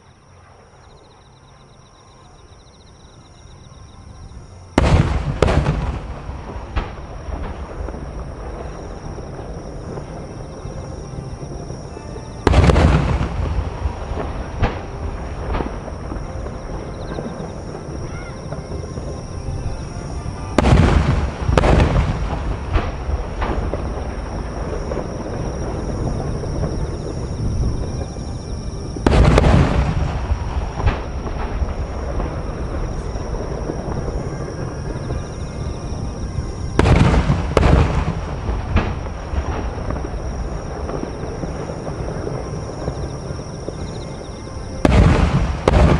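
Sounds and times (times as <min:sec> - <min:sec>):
rolling rumble: 0:04.3 - 0:45.9
firework shells booming: 0:04.8 - 0:10.6, 0:12.4 - 0:19.2, 0:20.6 - 0:28.2, 0:28.8 - 0:44.0, 0:44.8 - 0:45.9.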